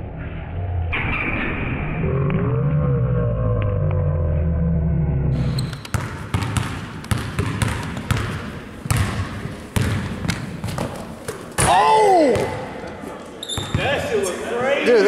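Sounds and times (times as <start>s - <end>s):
low rumble: 0.0s - 5.6s
basketball bouncing on wooden floor: 5.6s - 11.7s.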